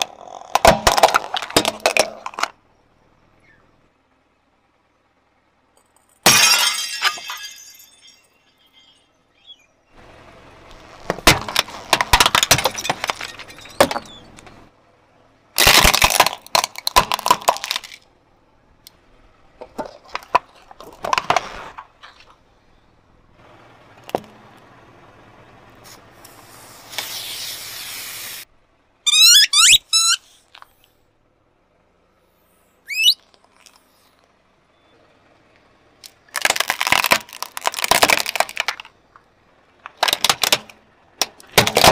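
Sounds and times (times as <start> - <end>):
car tyre crushing objects: 0.0 - 2.8, 10.1 - 14.7, 15.5 - 18.3, 19.2 - 23.0, 23.9 - 24.7, 36.0 - 41.9
quick high squeaks: 13.3 - 14.5, 29.1 - 30.5, 32.8 - 33.7.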